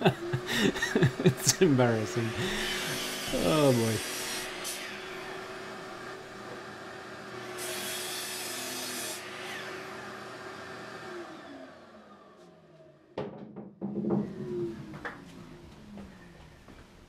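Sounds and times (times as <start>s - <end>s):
small motor humming and hissing: 2.2s - 12.5s.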